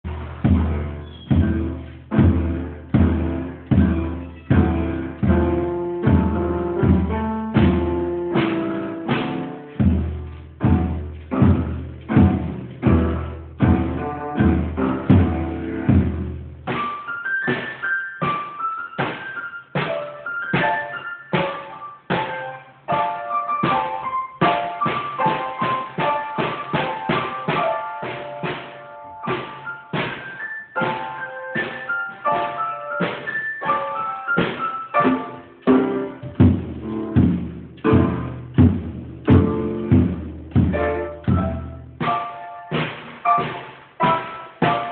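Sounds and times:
drum kit playing: 0.0 - 44.9
piano rhythmic chords: 0.0 - 44.9.

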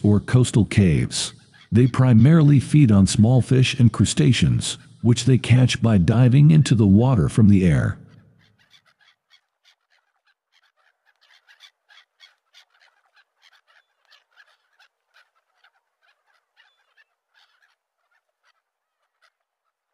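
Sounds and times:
animal chirping calls: 8.1 - 19.8.

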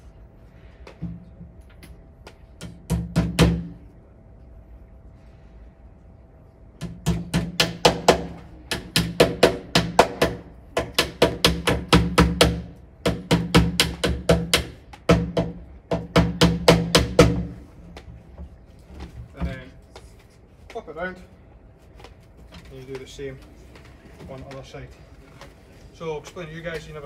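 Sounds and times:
hammer knocking tacks into wood: 6.8 - 18.1.

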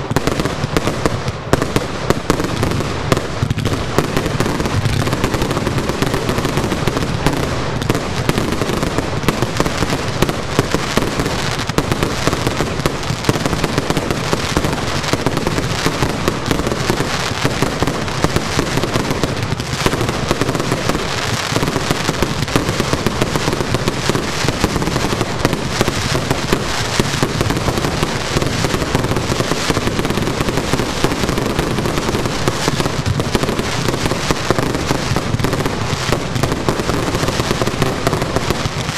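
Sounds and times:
fireworks bangs: 0.0 - 38.9.

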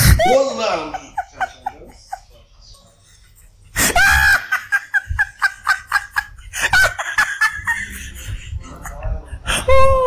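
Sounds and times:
high-pitched laughter: 3.8 - 10.0.

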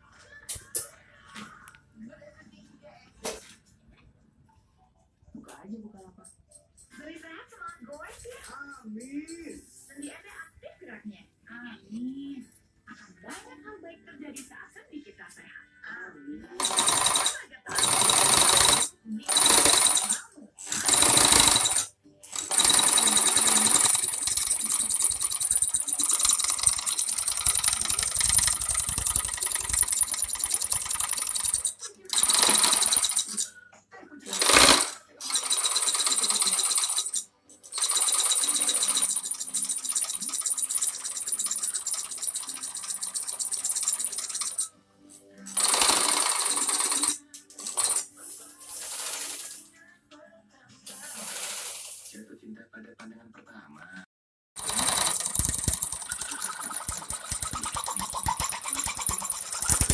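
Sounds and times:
scroll saw blade clattering: 54.6 - 59.9.

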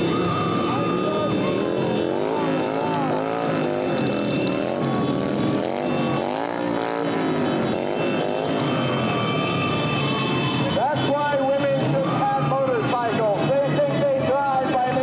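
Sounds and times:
motorcycles revving past: 0.0 - 9.8.

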